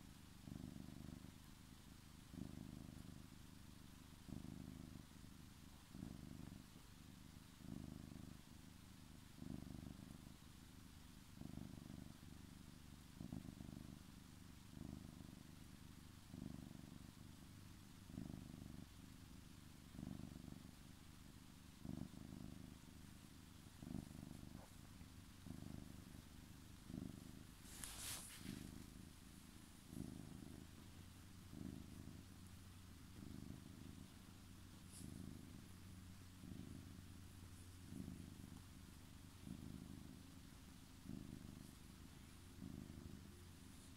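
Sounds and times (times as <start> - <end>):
cat purring: 0.0 - 43.9
scratchy rustle: 27.5 - 30.2.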